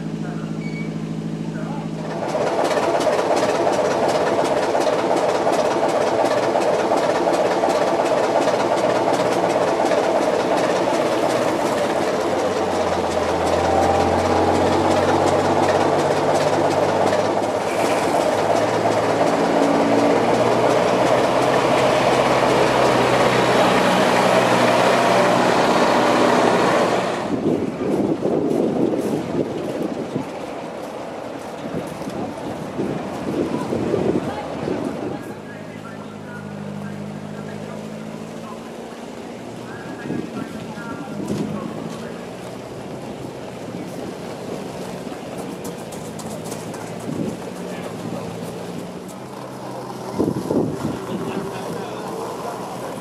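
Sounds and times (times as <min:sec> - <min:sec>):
diesel locomotive idling: 0:00.0 - 0:53.0
lorry diesel engine driving: 0:00.0 - 0:53.0.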